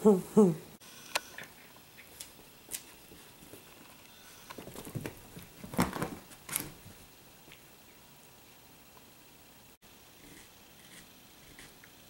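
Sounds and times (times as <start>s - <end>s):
dogs scuffling on carpet: 4.6s - 7.0s.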